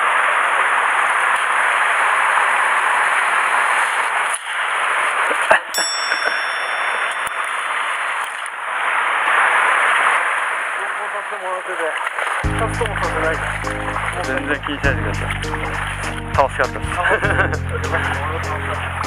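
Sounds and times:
stream water rushing over steps: 0.0s - 17.0s
metallic ping ringing: 5.8s - 8.5s.

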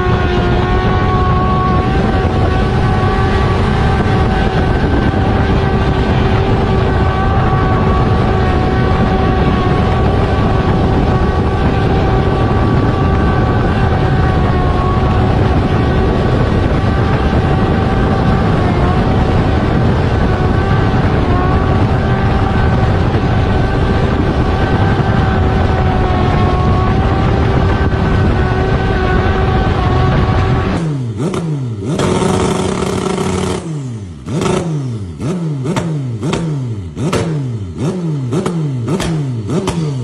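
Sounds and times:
motorcycle engine high note: 0.0s - 31.3s
motorcycle throttle blips: 0.0s - 40.0s
wind rush: 0.0s - 40.0s.

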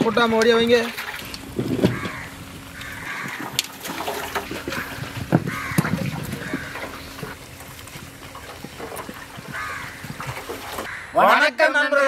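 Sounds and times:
water splashing and trickling: 0.0s - 11.0s
crows cawing: 1.8s - 7.4s, 9.4s - 11.2s.

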